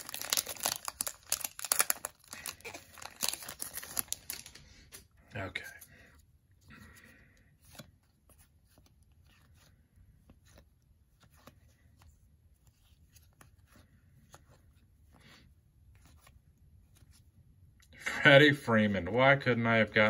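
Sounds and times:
cards being flipped: 0:07.6 - 0:15.2.

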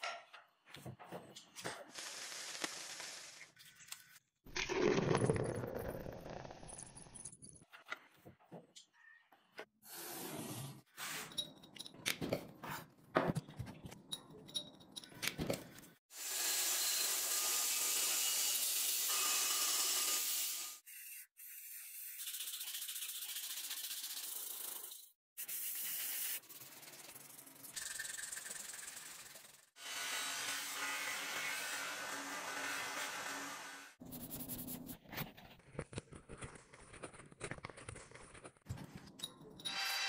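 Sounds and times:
metal clinks and scrapes: 0:13.7 - 0:16.0, 0:38.7 - 0:40.0.

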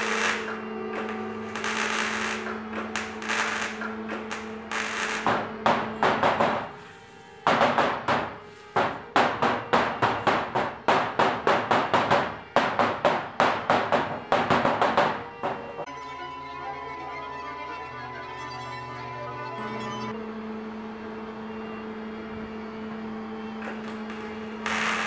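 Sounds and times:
welder crackling and buzzing: 0:00.0 - 0:06.8, 0:23.6 - 0:25.0.

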